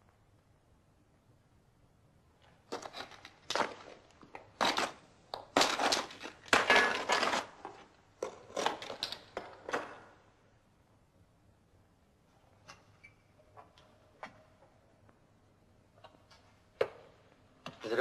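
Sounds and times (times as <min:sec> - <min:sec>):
rubble scraping and crunching: 0:02.6 - 0:10.1.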